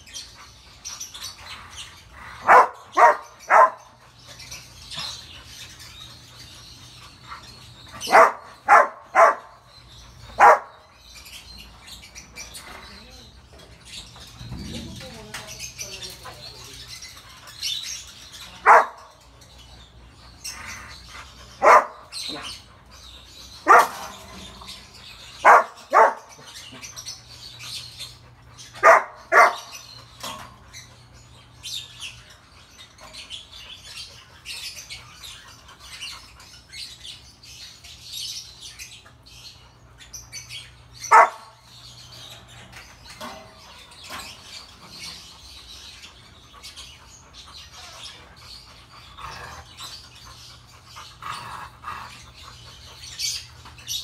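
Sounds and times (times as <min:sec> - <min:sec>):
faint birds chirping: 0:00.0 - 0:54.0
dog barking: 0:02.4 - 0:03.9, 0:08.0 - 0:09.6, 0:10.4 - 0:10.8, 0:18.6 - 0:19.1, 0:21.6 - 0:22.4, 0:23.6 - 0:24.1, 0:25.4 - 0:26.3, 0:28.8 - 0:29.7, 0:41.1 - 0:41.6.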